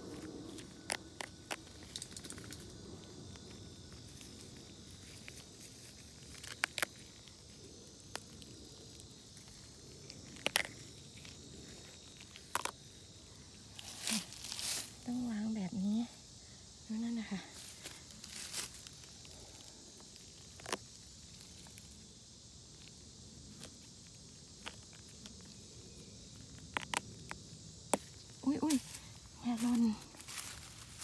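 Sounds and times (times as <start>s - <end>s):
faint insects hissing: 0.0s - 31.0s
mushrooms snapping while picked: 0.1s - 4.4s, 5.0s - 13.1s, 17.7s - 22.0s, 22.7s - 29.0s, 29.7s - 31.0s.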